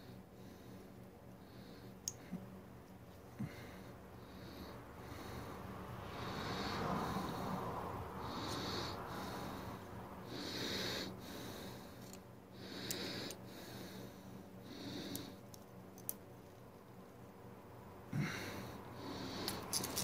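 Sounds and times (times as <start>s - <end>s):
person breathing through nose: 3.4s - 15.4s.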